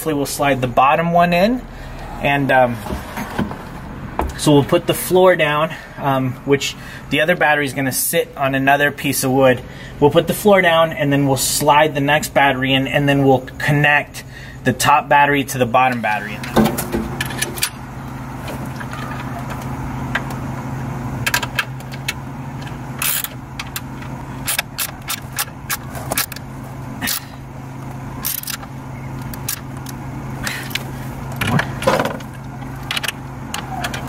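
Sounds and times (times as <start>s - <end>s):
low hum: 16.0s - 34.0s.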